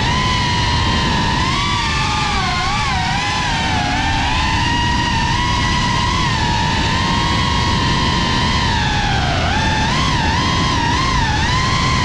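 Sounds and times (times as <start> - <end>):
drone propellers whining: 0.0 - 12.0.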